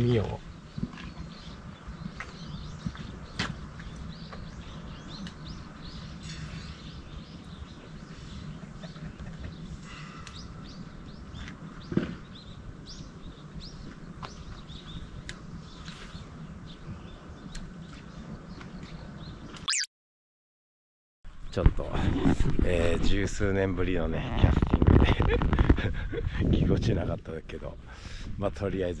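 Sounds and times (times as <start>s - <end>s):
small birds chirping: 0.0s - 19.9s.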